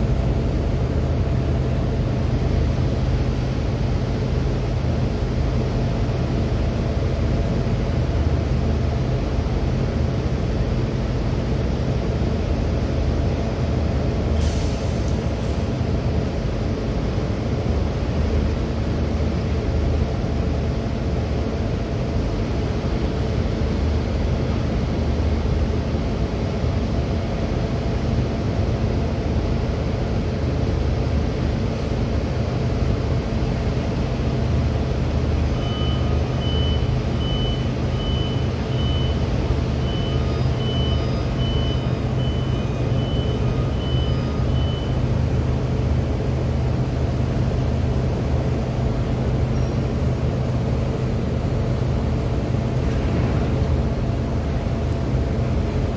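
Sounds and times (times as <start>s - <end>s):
electronic warning beeper: 39.8s - 45.0s
heavy machinery drone: 50.6s - 55.9s.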